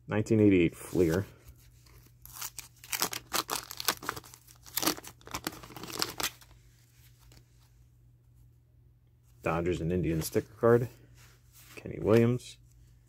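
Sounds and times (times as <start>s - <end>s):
wax paper wrapper tearing: 2.2s - 6.5s
faint handling noise: 6.6s - 13.0s.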